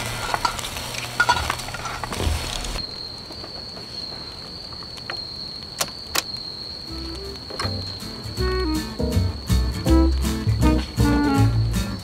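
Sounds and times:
food sizzling in a pan: 0.0 - 2.8
cricket trilling: 0.0 - 12.0.

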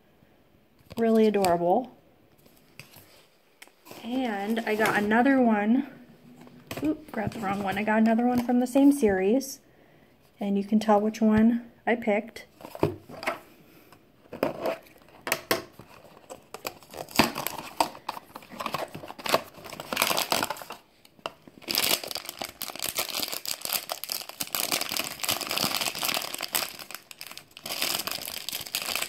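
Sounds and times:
foil bag crinkling and tearing: 15.9 - 20.9, 21.5 - 29.0.

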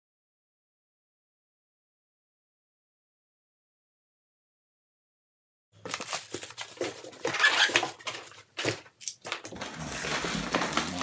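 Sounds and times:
plastic bag crinkling: 5.8 - 11.0
styrofoam rustling and squeaking: 5.8 - 11.0
sharp knocks and scrapes: 9.5 - 11.0.

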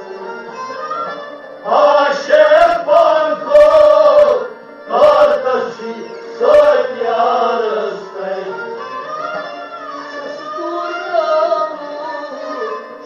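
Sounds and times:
man singing: 1.6 - 8.7, 10.1 - 12.7.

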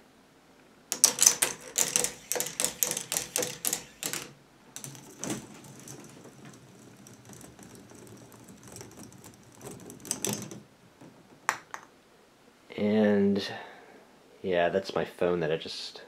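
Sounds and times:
plastic ball clacking down track: 0.9 - 10.7, 11.4 - 11.9
ball rolling rattle: 0.9 - 11.9.

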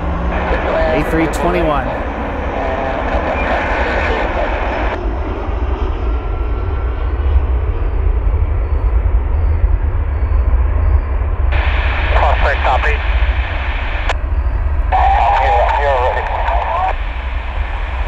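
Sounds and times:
jet engines rumbling: 0.0 - 18.0.

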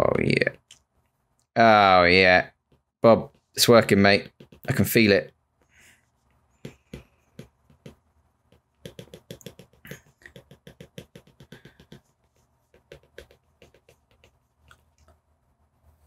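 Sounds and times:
stylus tapping on glass screen: 8.6 - 12.0.

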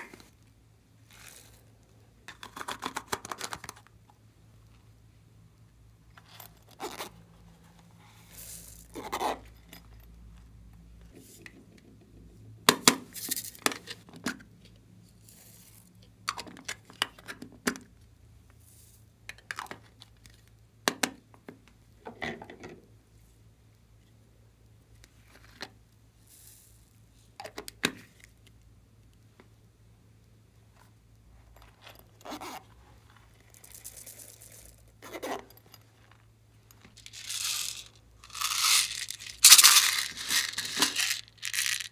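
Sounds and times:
foam beads poured into glass tray: 8.2 - 8.9, 37.0 - 41.9
plastic cases clicking and rattling: 37.0 - 41.9.

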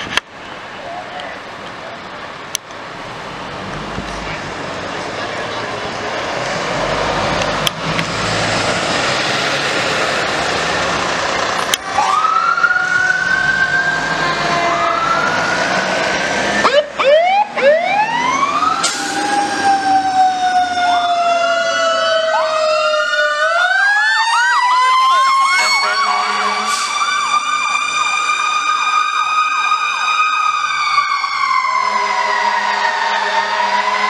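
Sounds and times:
siren wailing: 11.8 - 34.0
electronic siren yelp: 11.9 - 15.6, 16.6 - 34.0
low horn-like tone: 25.6 - 26.8.

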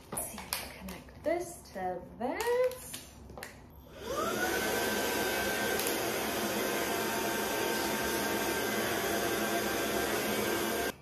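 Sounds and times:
vacuum motor whine: 3.9 - 11.0.

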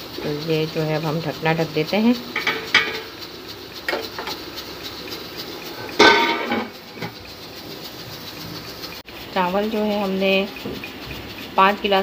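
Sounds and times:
metallic clang ringing: 5.8 - 7.1
cooking pot lid clinking: 5.8 - 7.2.

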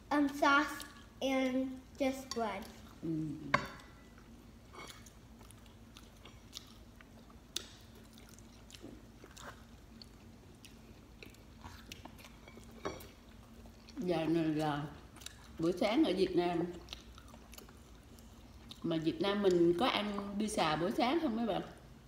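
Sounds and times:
people chewing pizza crust: 4.0 - 15.8, 16.6 - 20.4.

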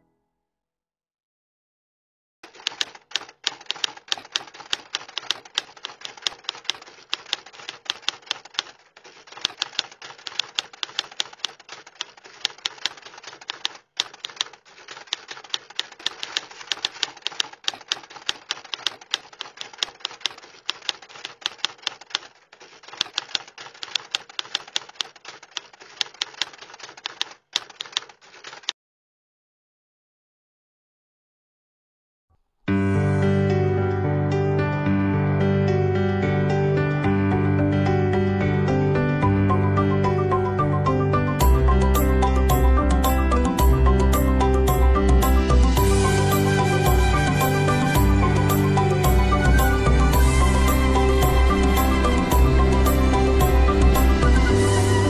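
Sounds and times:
typewriter key clacks: 2.4 - 28.7.

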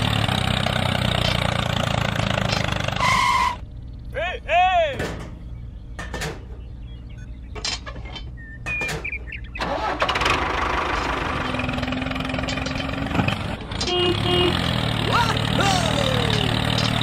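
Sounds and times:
engine running: 0.0 - 4.1, 9.2 - 17.0.

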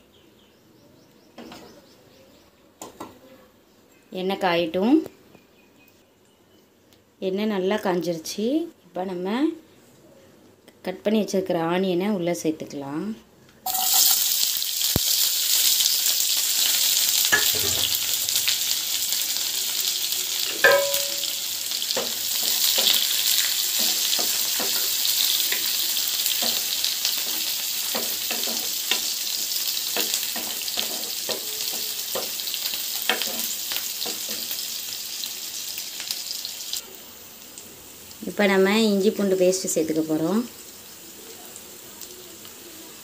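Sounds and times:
shallots sizzling in hot oil: 13.6 - 43.0.

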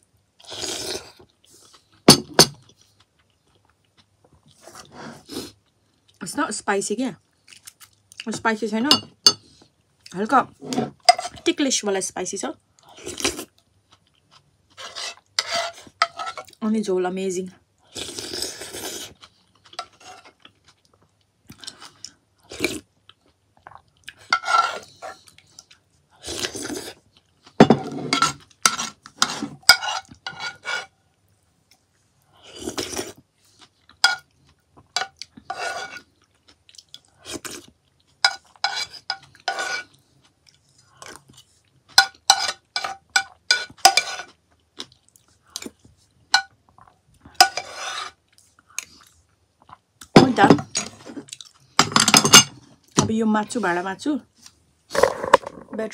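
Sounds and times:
person chewing noodles: 17.8 - 27.6, 31.8 - 41.9, 44.1 - 45.9, 51.1 - 51.8.

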